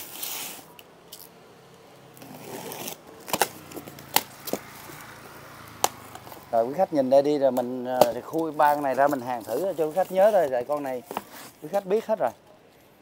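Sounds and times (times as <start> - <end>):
cardboard scraping: 2.2 - 5.1, 8.0 - 11.8.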